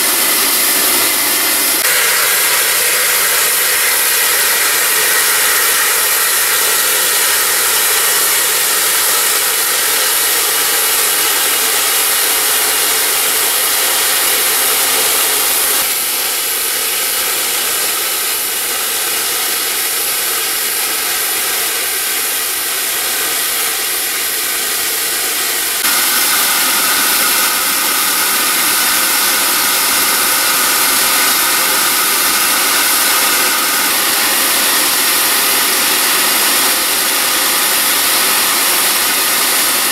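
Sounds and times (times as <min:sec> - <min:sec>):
steam locomotive hissing: 0:00.0 - 0:39.9.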